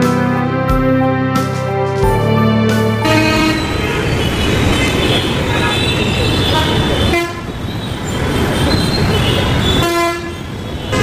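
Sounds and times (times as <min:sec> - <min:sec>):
dense road traffic: 0:00.0 - 0:11.0
vehicle horns honking: 0:03.0 - 0:11.0.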